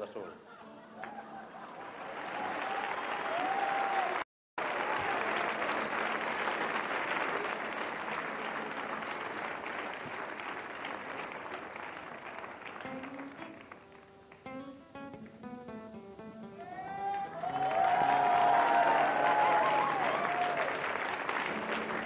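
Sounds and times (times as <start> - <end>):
audience applause: 1.0 - 14.1, 16.9 - 22.0
nylon-string acoustic guitar picking: 14.4 - 16.6.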